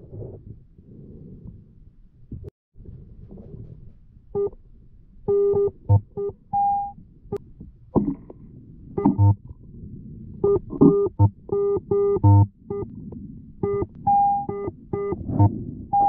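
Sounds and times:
low underwater rumble: 0:00.0 - 0:16.0
metal detector electronic beeps: 0:05.3 - 0:07.0, 0:10.5 - 0:12.9, 0:13.6 - 0:16.0.

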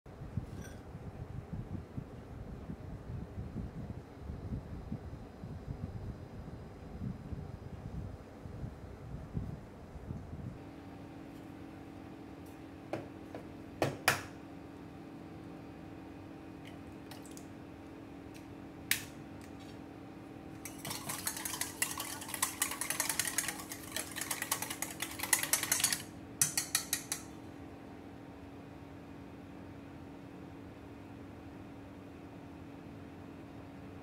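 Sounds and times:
steady low hum: 0:00.1 - 0:31.5
whisk beating in metal bowl: 0:20.6 - 0:27.3
whisk clicking against bowl: 0:20.6 - 0:27.4
egg cracked against metal bowl: 0:26.4 - 0:27.3.

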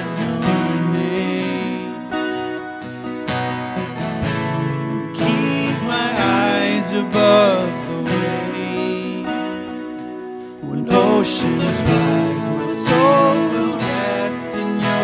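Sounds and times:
man singing into microphones: 0:00.0 - 0:02.4, 0:04.9 - 0:09.9, 0:10.6 - 0:15.0
acoustic guitars strumming: 0:00.0 - 0:15.0.

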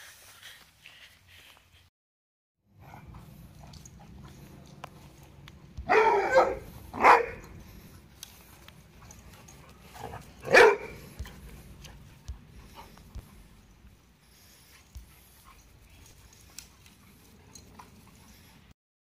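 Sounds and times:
dog barking: 0:05.8 - 0:07.6, 0:10.0 - 0:11.0
dog yipping: 0:05.9 - 0:07.6, 0:10.4 - 0:11.0.

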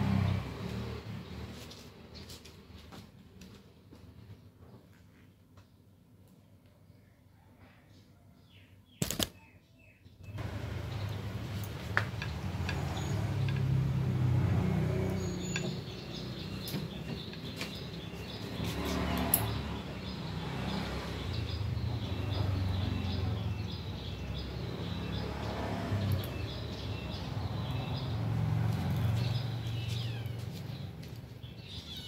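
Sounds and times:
sharp click: 0:09.0 - 0:09.4.

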